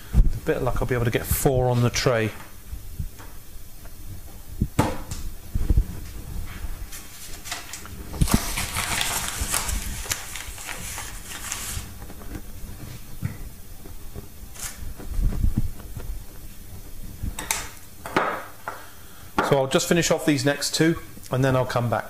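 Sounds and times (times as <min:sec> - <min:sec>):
paper bag rustling: 0:06.0 - 0:17.0.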